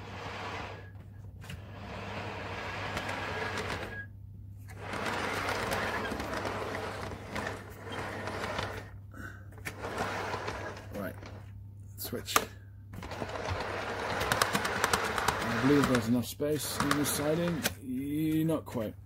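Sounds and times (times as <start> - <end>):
wheels rolling on rails: 0.0 - 9.0, 9.6 - 11.5, 13.0 - 17.7
model train motor whirring: 4.7 - 8.9, 13.0 - 17.7.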